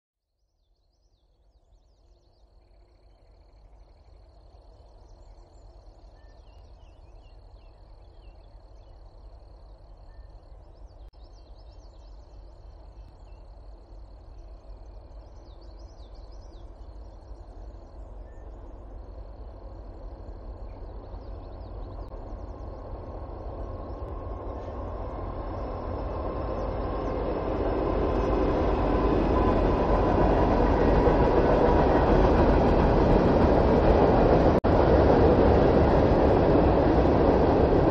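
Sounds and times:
train rumble: 0:04.1 - 0:37.9
birds chirping: 0:14.2 - 0:34.5.

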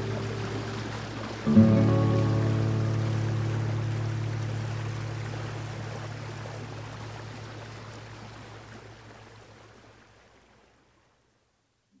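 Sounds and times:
river water rushing: 0:00.0 - 0:10.8.

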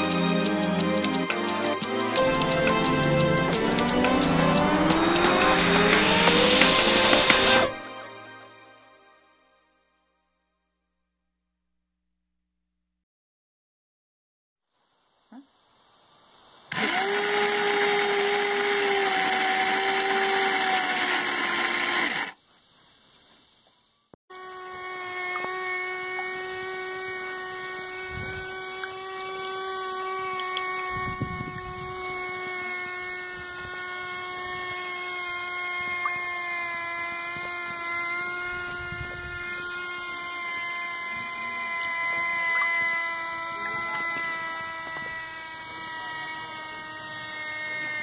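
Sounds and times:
small electric motor whining: 0:00.0 - 0:08.1, 0:16.7 - 0:22.4, 0:24.3 - 0:48.0.

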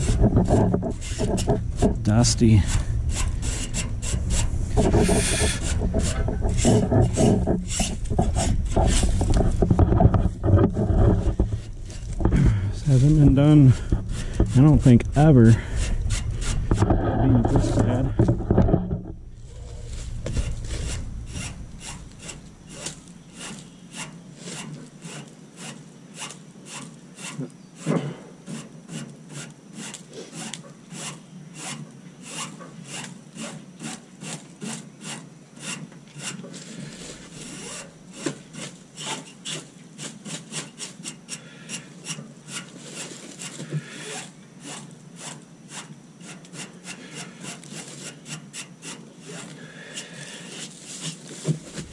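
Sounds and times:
brush scrubbing coil fins: 0:00.0 - 0:27.5.

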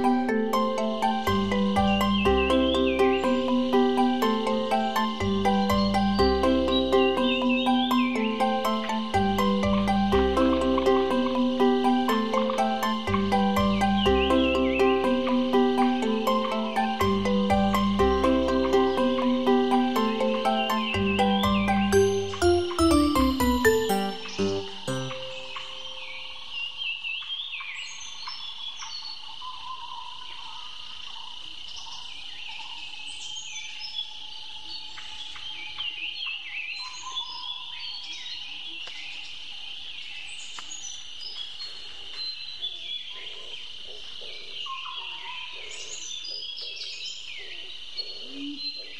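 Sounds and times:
high insect drone: 0:00.0 - 0:21.9
birds chirping: 0:00.0 - 0:26.3
whistled bird notes: 0:00.8 - 0:26.3.

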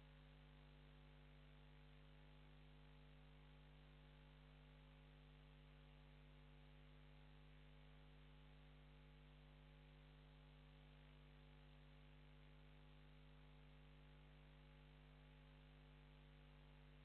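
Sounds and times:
faint mains hum with hiss: 0:00.0 - 0:17.0.

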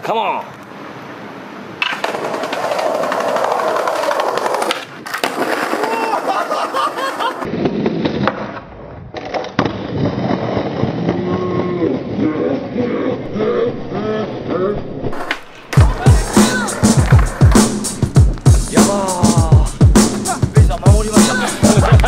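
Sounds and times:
skateboard wheels rolling on concrete: 0:00.0 - 0:22.0
skateboard clacking on ground: 0:01.8 - 0:06.6
voices calling out: 0:11.6 - 0:17.8, 0:18.6 - 0:22.0.

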